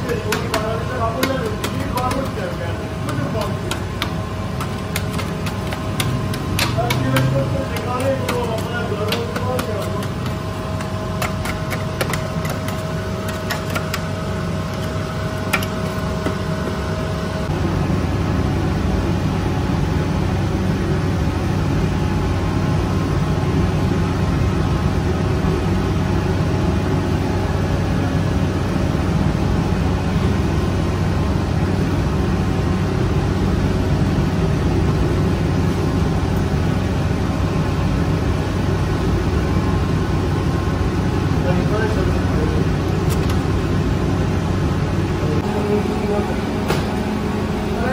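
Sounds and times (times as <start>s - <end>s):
dough mixer running: 0.0s - 17.6s
bread oven rush and hum: 0.0s - 47.9s
scraper knocks: 0.1s - 14.1s.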